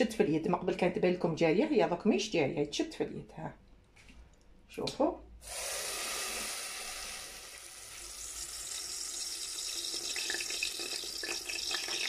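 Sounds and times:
dough deep-frying in hot oil: 0:05.5 - 0:12.0
oil popping: 0:08.2 - 0:12.0.

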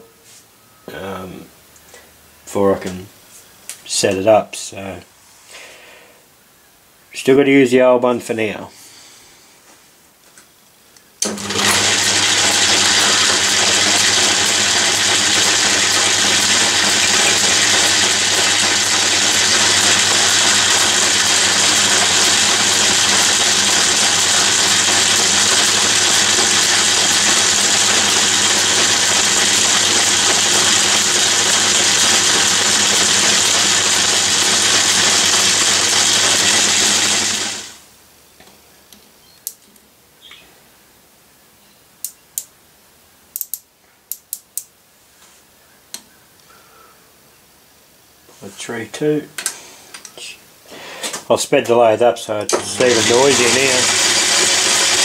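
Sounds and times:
lathe motor and gear hum: 0:11.2 - 0:37.8, 0:52.5 - 0:55.0.

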